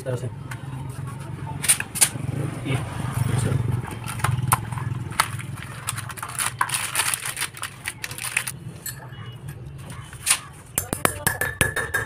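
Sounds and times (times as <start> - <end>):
cardboard and plastic wrapping crackling: 3.8 - 8.6.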